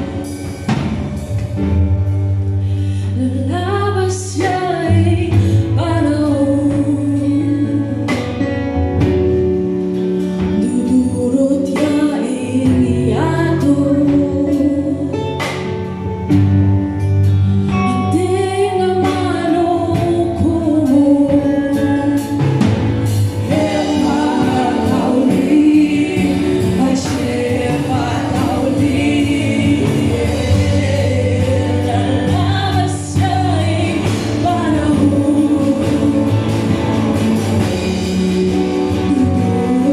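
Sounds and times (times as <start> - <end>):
live band playing: 0.0 - 39.9
woman singing lead vocals: 2.6 - 9.2, 10.4 - 15.9, 17.6 - 39.9
drum hits: 22.5 - 39.3.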